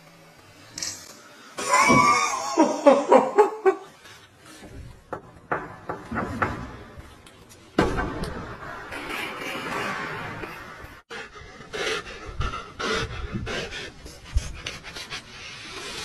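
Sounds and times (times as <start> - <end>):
person laughing: 1.6 - 3.9.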